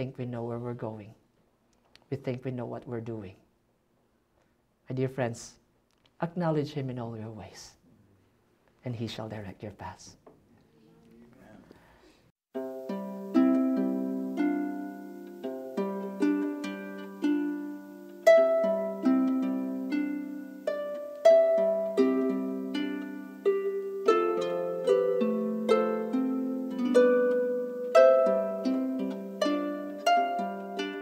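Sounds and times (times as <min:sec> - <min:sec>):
slow plucked instrumental music: 0:12.6 - 0:31.0.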